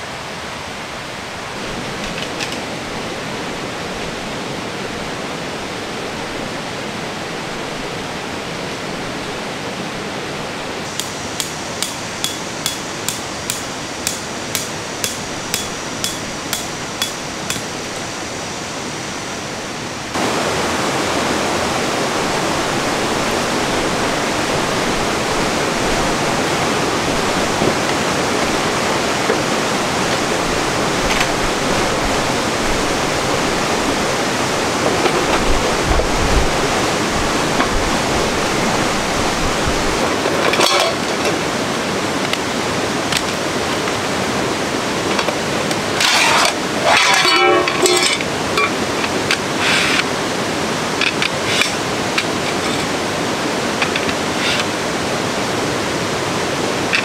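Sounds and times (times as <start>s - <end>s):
stream rushing: 0.0s - 57.0s
sharp ringing knocks: 10.9s - 17.8s.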